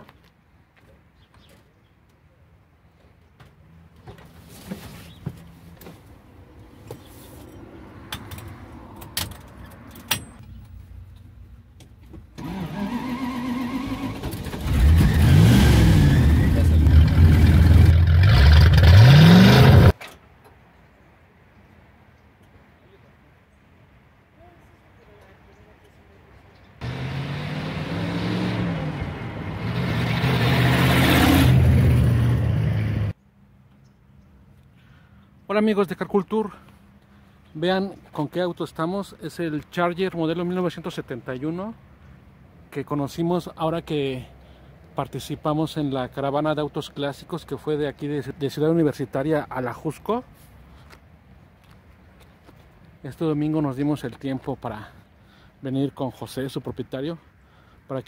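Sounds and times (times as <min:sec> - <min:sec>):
car engine starting and running: 0:12.3 - 0:20.0, 0:26.8 - 0:33.1
car engine running and revving: 0:14.7 - 0:19.9.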